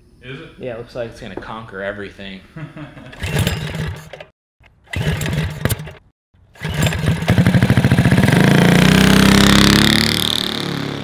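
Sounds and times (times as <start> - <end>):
engine running and revving: 6.6 - 11.0.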